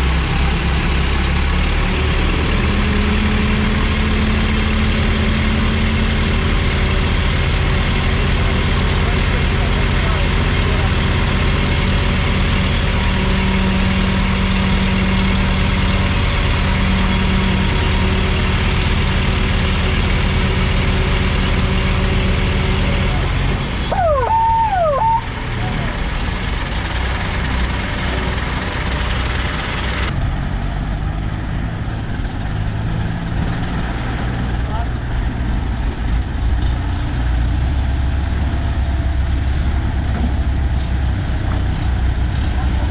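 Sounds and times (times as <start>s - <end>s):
diesel engines droning: 0.0s - 42.9s
warbling whistle-like tone: 23.9s - 25.8s.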